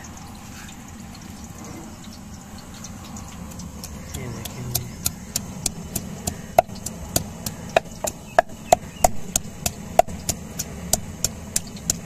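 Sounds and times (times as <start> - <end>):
pestle pounding in wooden mortar: 3.5 - 12.0.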